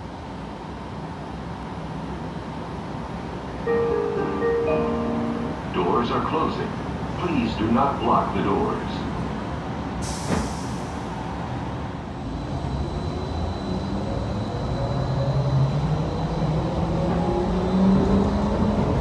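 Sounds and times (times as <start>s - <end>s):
brief hiss: 10.0s - 11.0s.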